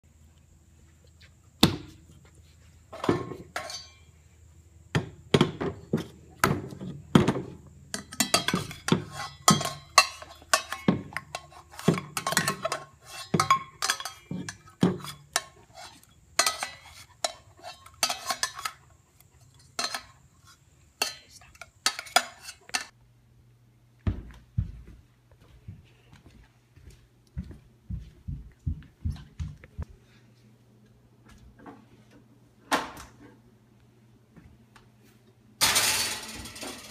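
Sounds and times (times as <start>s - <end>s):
utensil clanking in metal pot: 3.5s - 4.0s, 7.9s - 18.8s, 19.6s - 20.2s.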